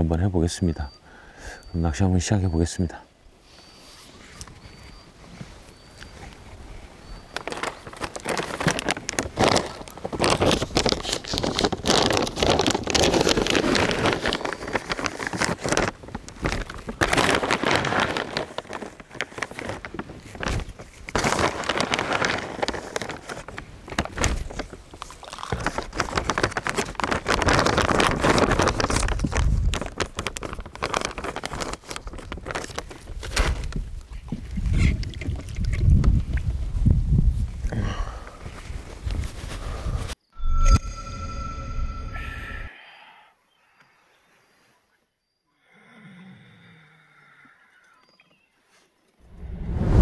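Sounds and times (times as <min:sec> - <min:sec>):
wind buffeting microphone: 0:33.6 - 0:37.7
wind gusting through reeds: 0:49.2 - 0:50.0.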